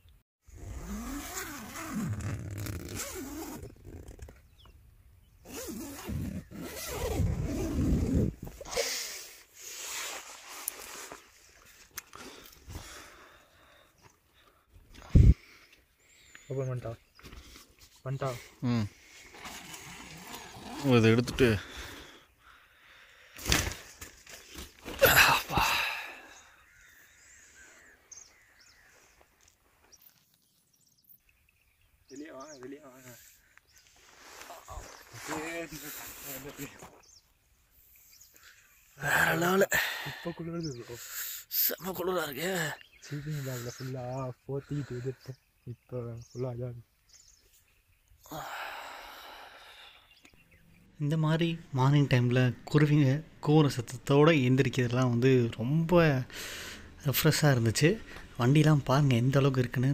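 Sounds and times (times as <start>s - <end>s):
tent fabric rustling: 0.5s - 4.3s, 5.5s - 12.4s, 19.2s - 21.6s, 33.8s - 37.0s
tent zipper rasping: 0.5s - 4.5s, 5.4s - 11.4s, 19.2s - 22.0s.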